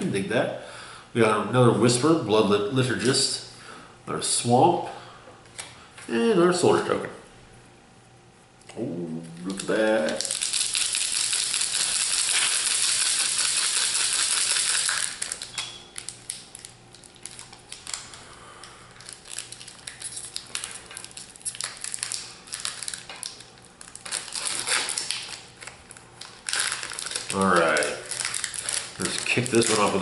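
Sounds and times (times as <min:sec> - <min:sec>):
foil wrapper tearing and rustling: 0:09.4 - 0:18.3, 0:19.0 - 0:30.0
plastic wrapper crinkling: 0:09.4 - 0:30.0.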